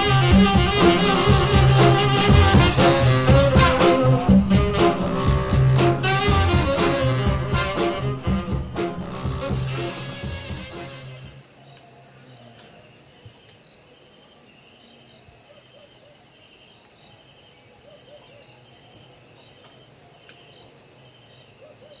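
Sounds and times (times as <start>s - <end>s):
crickets chirping: 2.2s - 22.0s
faint low insect calls: 2.6s - 22.0s
short insect chirps: 2.9s - 15.4s.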